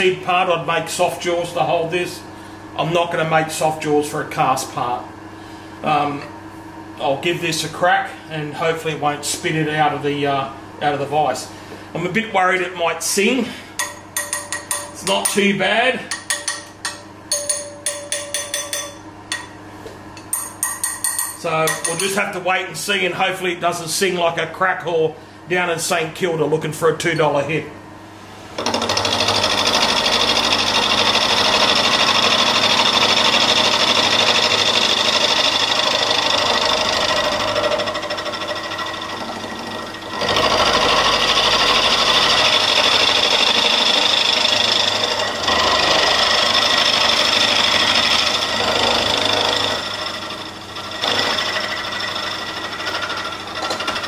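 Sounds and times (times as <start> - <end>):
person speaking: 7.0 - 13.8, 14.8 - 16.3, 21.3 - 27.8
milling machine cutting metal: 20.2 - 22.2, 28.6 - 54.0.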